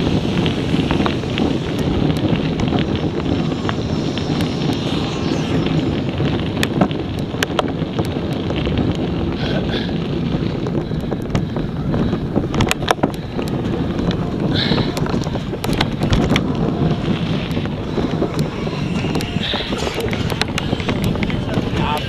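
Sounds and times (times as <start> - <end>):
tyres rumbling on dirt trail: 0.0 - 4.3, 6.0 - 22.0
wind buffeting microphone: 0.0 - 22.0
bike rattling and clicking: 6.6 - 22.0.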